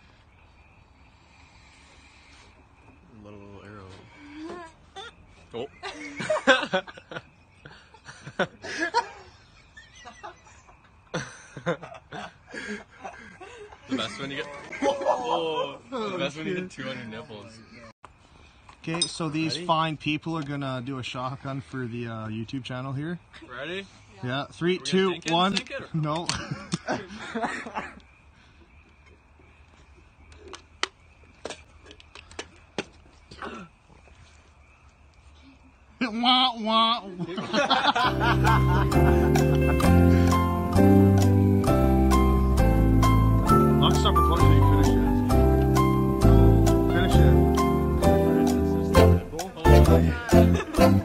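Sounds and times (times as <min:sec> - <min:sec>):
people laughing and snickering: 0:04.3 - 0:16.6, 0:26.3 - 0:28.1, 0:37.1 - 0:41.5, 0:48.1 - 0:51.0
person speaking: 0:43.5 - 0:45.3, 0:46.4 - 0:51.0.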